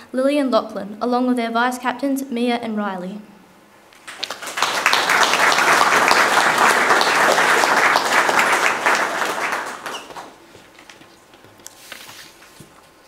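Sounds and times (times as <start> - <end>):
audience applauding: 4.0 - 10.7.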